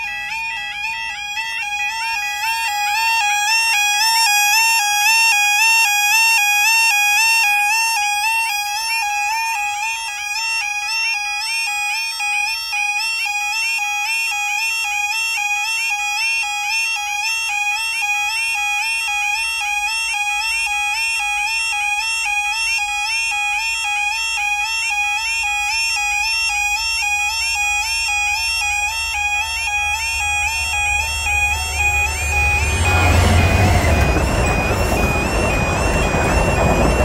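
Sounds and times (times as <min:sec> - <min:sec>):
diesel locomotive rumble: 0:00.0 - 0:07.2, 0:27.4 - 0:37.0
level crossing alarms warbling: 0:00.0 - 0:37.0.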